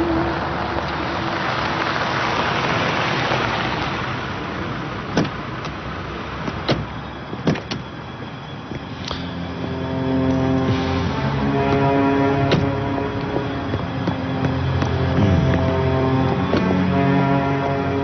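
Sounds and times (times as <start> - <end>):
car engine and tyre noise: 0.0 - 18.0
car door unlatching and opening: 5.1 - 5.7, 6.4 - 8.0.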